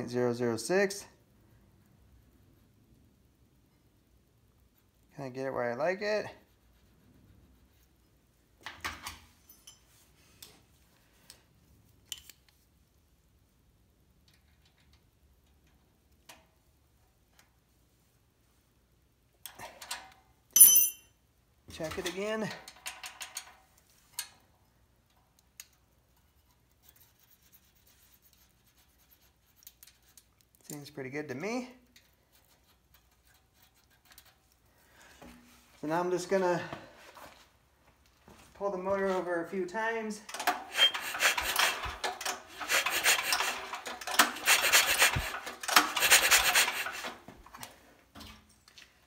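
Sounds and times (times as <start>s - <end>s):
pull-starter rope whirring: 40.5s - 47.2s.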